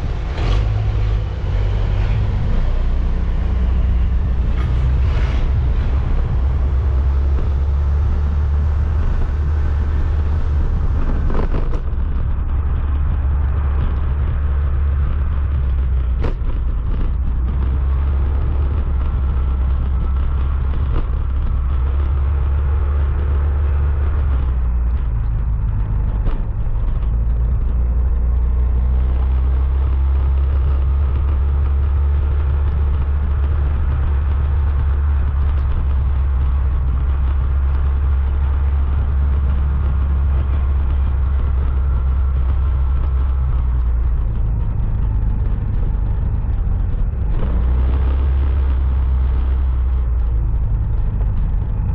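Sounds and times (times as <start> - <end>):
motorcycle engine running: 0.0 - 51.9
wind rumble on microphone: 0.0 - 51.9.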